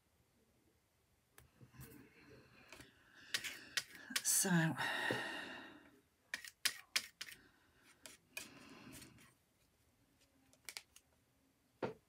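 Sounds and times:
palette knife scraping paint: 3.2s - 4.4s, 6.3s - 9.3s
palette knife clicking on paper: 3.3s - 4.3s, 6.3s - 7.4s.

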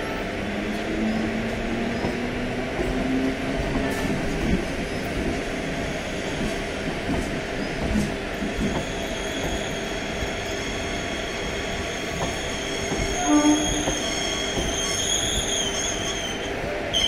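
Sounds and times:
train rolling slowly: 0.0s - 17.0s
high thin wheel squeal: 12.5s - 16.4s
train horn hoot: 13.0s - 14.4s.

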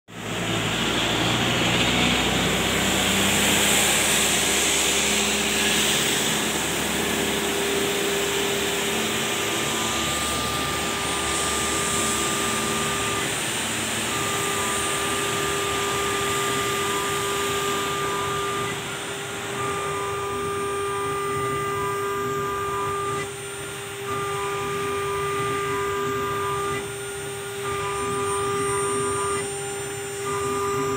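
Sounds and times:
router spindle whining: 0.1s - 30.9s
hiss of cutting: 1.6s - 18.0s.

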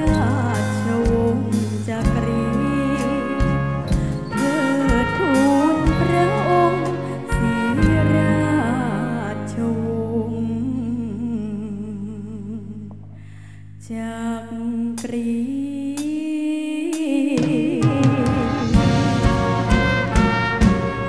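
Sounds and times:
drums: 0.0s - 8.5s, 16.0s - 16.3s, 16.9s - 21.0s
band chords: 0.0s - 10.5s, 17.9s - 21.0s
woman singing with vibrato: 0.0s - 13.0s, 13.8s - 19.4s.

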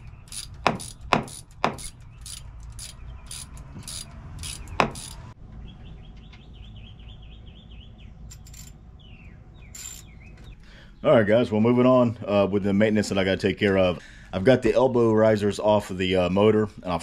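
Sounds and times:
ratchet wrench clicking: 0.0s - 5.3s, 9.8s - 10.0s
sharp metallic knocks: 0.0s - 5.4s
birds chirping: 0.0s - 15.8s.

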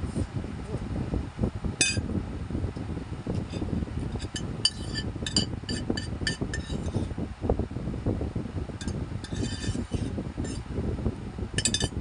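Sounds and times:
metal spoon clinking against bowl: 11.6s - 12.0s.

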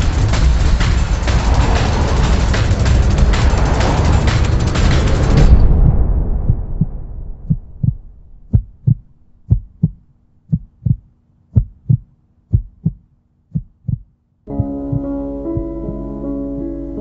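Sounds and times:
loud swell: 0.0s - 9.3s
heartbeat thumps: 5.2s - 16.0s.

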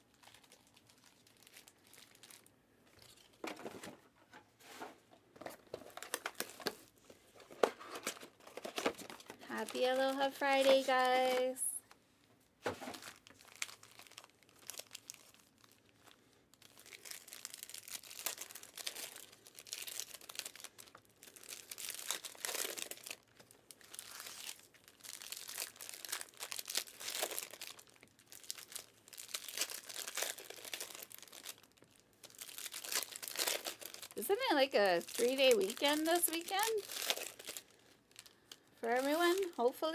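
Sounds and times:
card pack wrappers crinkling and tearing: 0.0s - 4.0s, 5.4s - 11.9s, 12.8s - 39.9s.

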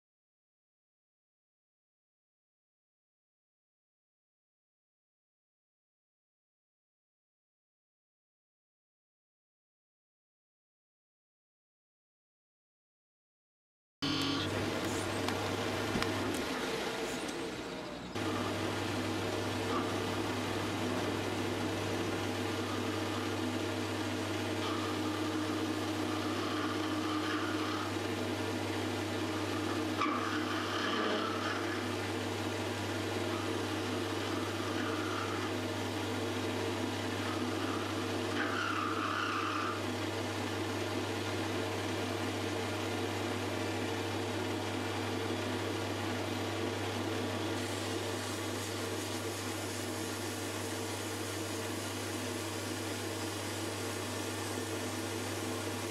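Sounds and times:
metal lathe humming: 14.0s - 55.9s.

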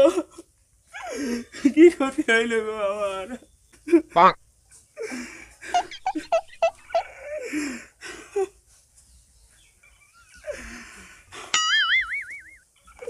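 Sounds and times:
man sobbing and wailing: 5.0s - 8.6s.

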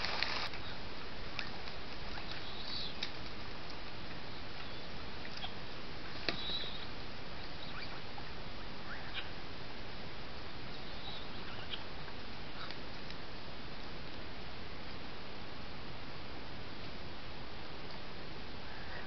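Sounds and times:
microphone hiss: 0.0s - 19.0s
faint high chirps and squeaks: 6.3s - 6.9s, 7.6s - 8.0s, 10.8s - 11.8s.

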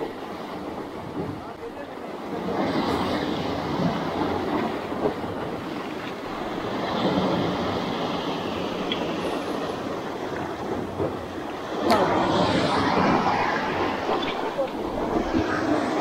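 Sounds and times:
water rushing along hull: 0.0s - 16.0s.

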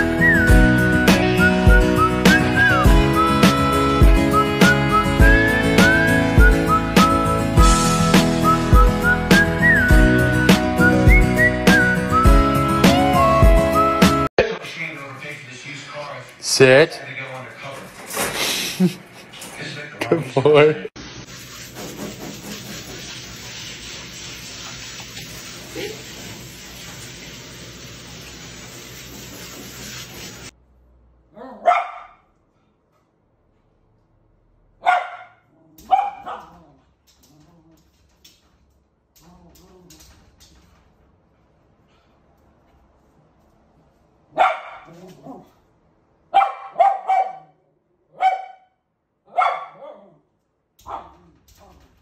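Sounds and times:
hose spraying water: 21.0s - 30.5s
small dog barking: 31.3s - 32.3s, 34.8s - 36.8s, 44.3s - 45.4s, 46.3s - 50.2s, 50.8s - 51.2s.

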